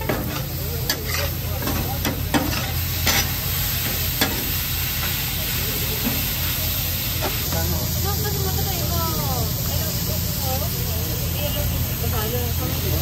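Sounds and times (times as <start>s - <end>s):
metal spatula scraping griddle: 0.0s - 3.4s
meat sizzling: 0.0s - 13.0s.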